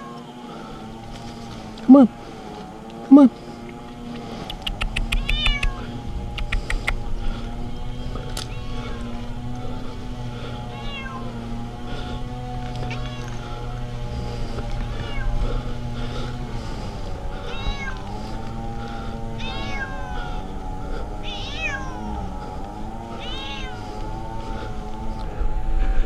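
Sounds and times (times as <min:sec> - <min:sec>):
cat meowing: 0:04.9 - 0:05.8, 0:08.4 - 0:09.2, 0:10.7 - 0:11.3, 0:12.8 - 0:13.5, 0:15.0 - 0:15.3, 0:17.5 - 0:18.0, 0:19.4 - 0:20.2, 0:21.2 - 0:22.1, 0:23.2 - 0:23.8.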